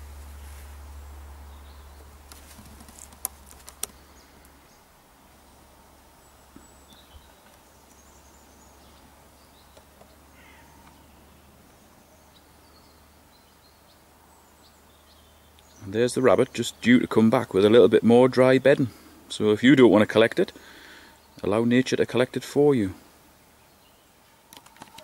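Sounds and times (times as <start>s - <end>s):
faint bird calls: 1.5s - 15.9s
sharp clicks: 2.3s - 4.6s, 24.5s - 25.0s.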